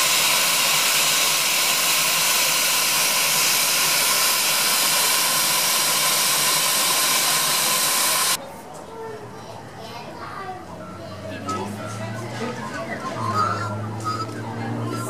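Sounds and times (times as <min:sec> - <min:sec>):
steam locomotive hissing: 0:00.0 - 0:08.4.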